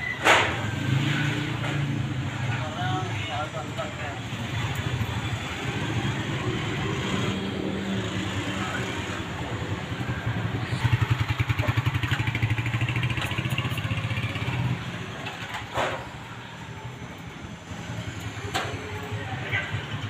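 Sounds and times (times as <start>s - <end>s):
motorcycle engine putter: 10.9s - 14.4s.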